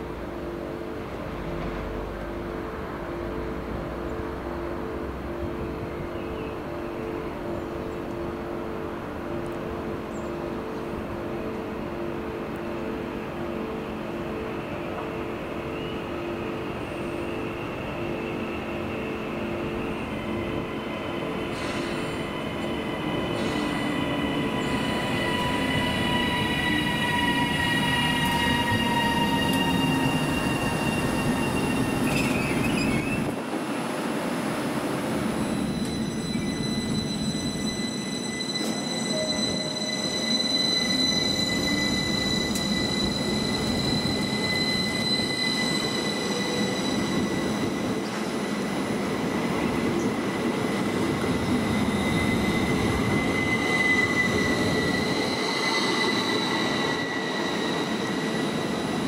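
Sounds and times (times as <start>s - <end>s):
train carriages running noise: 0.0s - 59.0s
electric train traction whine: 35.3s - 59.0s.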